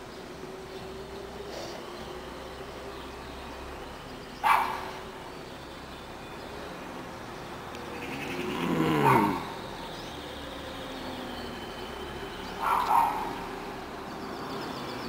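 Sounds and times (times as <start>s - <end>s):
vehicle passing: 0.4s - 15.0s
dog barking: 4.4s - 5.0s, 9.0s - 9.4s, 12.6s - 13.4s.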